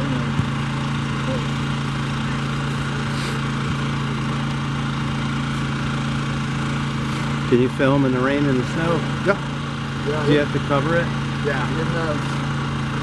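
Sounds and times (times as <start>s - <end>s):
small engine humming: 0.0s - 13.0s.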